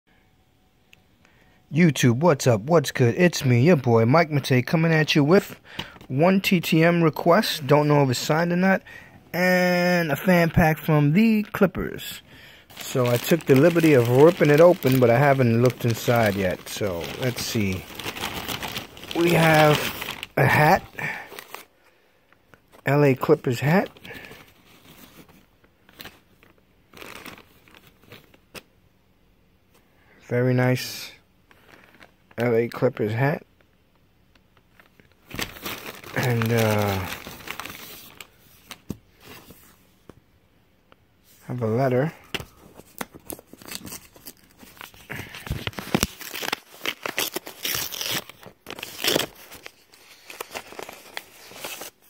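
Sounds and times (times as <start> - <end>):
paper envelope rustling: 12.7 - 21.7, 23.8 - 28.4, 34.7 - 39.8, 42.2 - 52.0.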